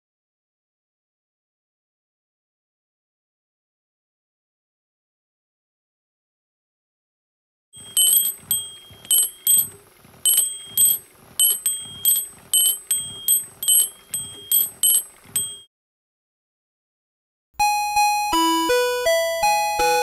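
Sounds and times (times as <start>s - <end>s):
clock bell struck by hammer: 7.8s - 15.6s
faint steady hum: 7.8s - 15.6s.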